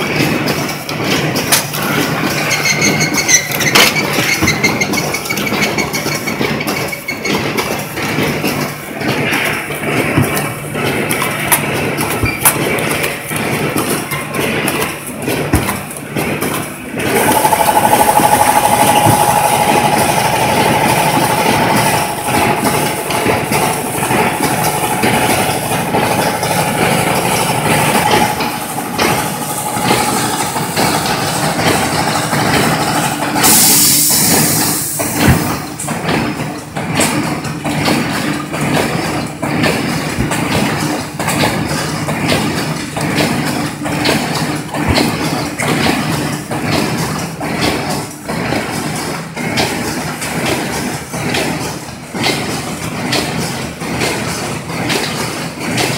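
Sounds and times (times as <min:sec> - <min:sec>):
machine clattering with short knocks: 0:00.0 - 0:55.9
steady machine whine: 0:15.8 - 0:36.8.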